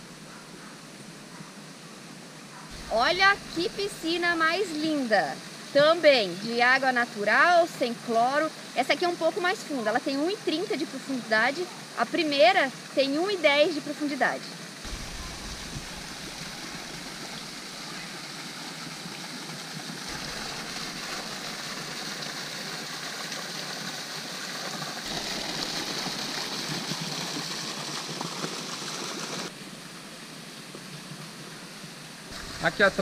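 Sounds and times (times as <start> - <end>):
waterfall pouring into pool: 12.1 - 33.0.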